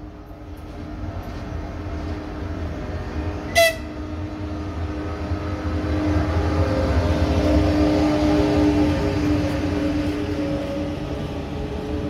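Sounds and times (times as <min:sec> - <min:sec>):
train rumbling: 0:00.0 - 0:12.0
train horn toot: 0:03.5 - 0:04.0.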